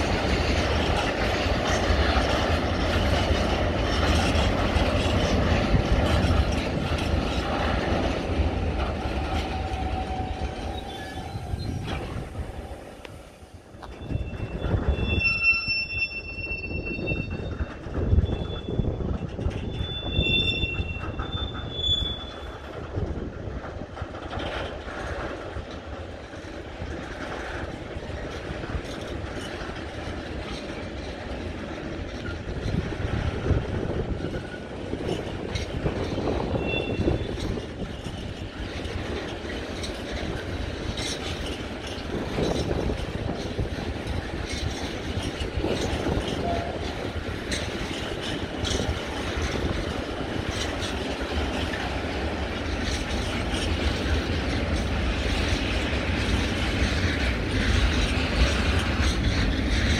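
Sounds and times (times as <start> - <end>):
train wheels rumbling on rails: 0.0 - 59.9
wheel squeals: 13.8 - 22.8, 34.1 - 43.6.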